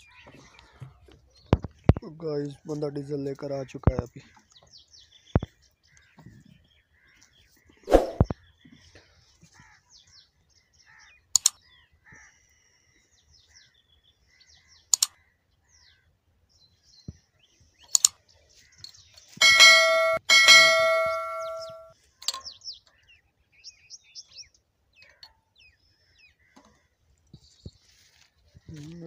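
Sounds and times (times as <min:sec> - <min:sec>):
small birds chirping: 0:00.0 - 0:29.0
bell-like notification ding: 0:19.4 - 0:21.9.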